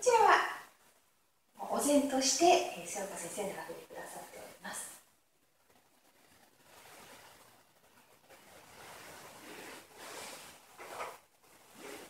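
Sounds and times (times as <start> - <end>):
cloth rustling: 5.6 - 12.0.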